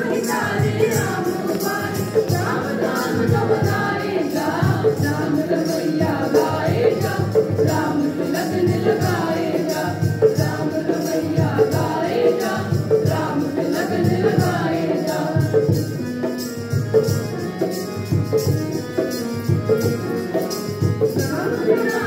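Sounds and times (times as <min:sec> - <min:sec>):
group singing devotional song: 0:00.0 - 0:16.5
drums and percussion beat: 0:00.0 - 0:22.0.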